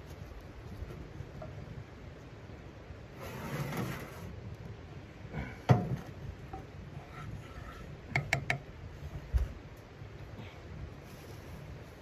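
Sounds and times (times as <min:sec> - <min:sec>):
frying pan scraping on stove: 0:03.2 - 0:04.3.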